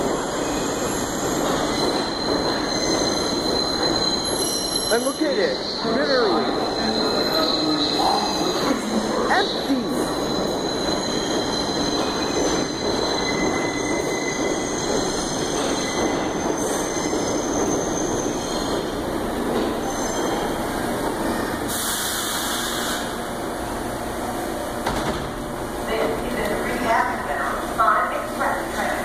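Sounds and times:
subway train rumble: 0.0s - 29.0s
train wheel squeal: 0.2s - 23.2s
brake hiss: 21.7s - 23.1s.

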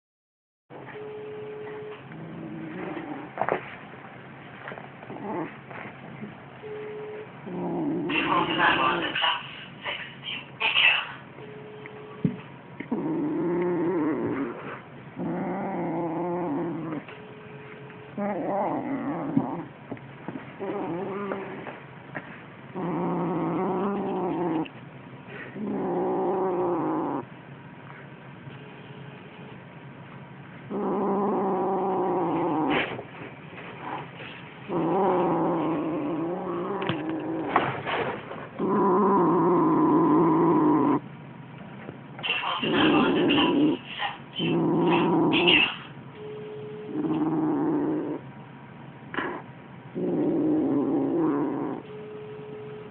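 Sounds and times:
kitten growling: 2.1s - 3.6s, 5.0s - 6.4s, 7.4s - 9.2s, 12.8s - 17.2s, 18.1s - 21.8s, 22.7s - 27.4s, 30.7s - 33.1s, 33.8s - 37.8s, 38.5s - 41.1s, 42.2s - 45.9s, 46.8s - 48.3s, 49.1s - 52.1s.

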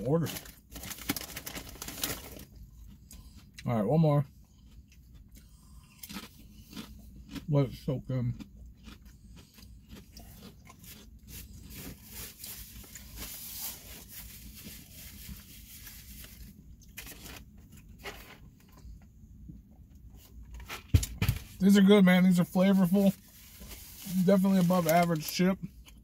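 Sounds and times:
potato chips being chewed: 0.3s - 3.7s, 4.4s - 14.6s, 23.6s - 26.0s.

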